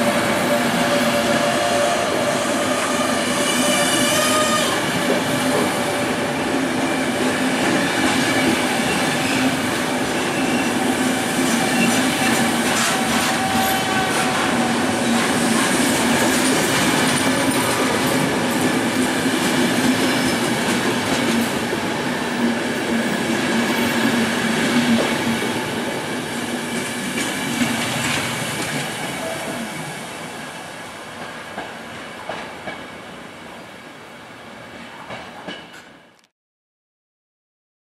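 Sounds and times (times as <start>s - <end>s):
train wheels clattering on rails: 4.8s - 29.6s, 31.1s - 33.0s, 35.0s - 36.1s.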